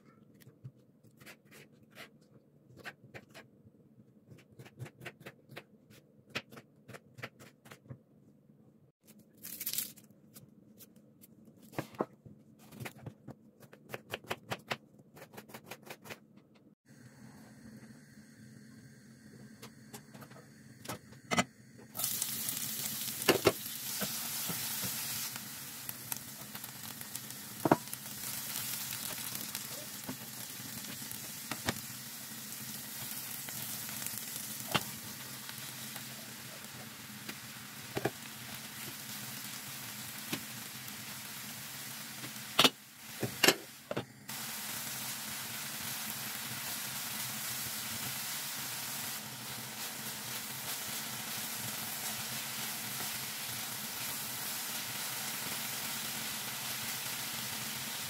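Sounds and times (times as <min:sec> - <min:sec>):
vegetables sizzling in oil: 0:21.9 - 0:58.0.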